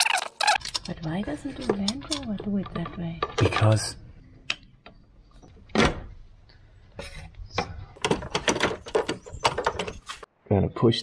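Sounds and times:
clicks and rattles: 0.6 - 5.0, 7.6 - 10.3.

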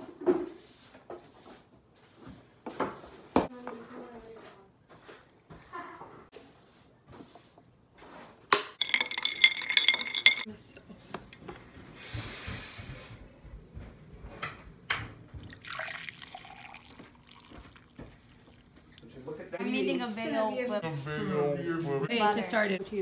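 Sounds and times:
ice clinking in glass jar: 8.8 - 10.5, 15.5 - 18.6
coffee pouring into a mug: 15.3 - 19.2
liquid pouring: 15.3 - 19.2.

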